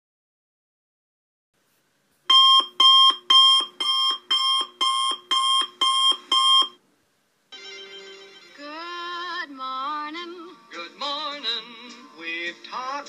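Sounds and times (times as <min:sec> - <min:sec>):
alarm clock beeping: 0:02.3 - 0:06.8.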